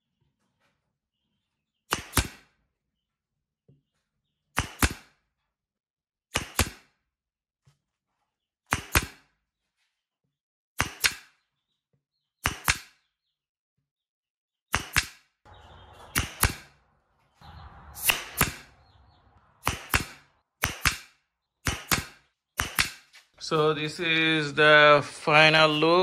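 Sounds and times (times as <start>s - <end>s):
nail gun firing into plywood: 1.9s - 2.4s, 4.6s - 5.1s, 6.3s - 6.9s, 8.7s - 9.2s, 10.8s - 11.3s, 12.4s - 13.0s, 14.7s - 15.2s, 16.2s - 16.6s, 19.6s - 23.0s.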